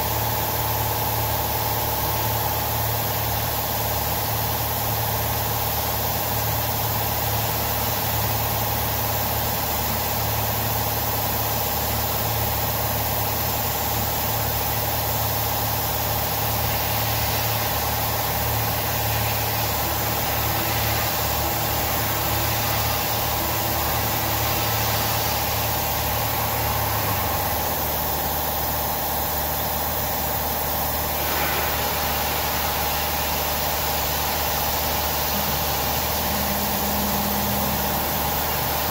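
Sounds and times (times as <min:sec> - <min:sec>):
milling machine running: 0:00.0 - 0:38.9
spindle and motor hum: 0:00.0 - 0:38.9
constant hiss: 0:14.4 - 0:38.9.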